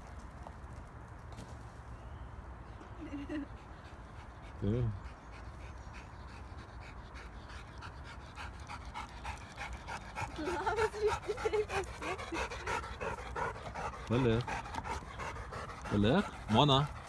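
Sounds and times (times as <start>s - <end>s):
dog panting rapidly: 3.4s - 17.0s.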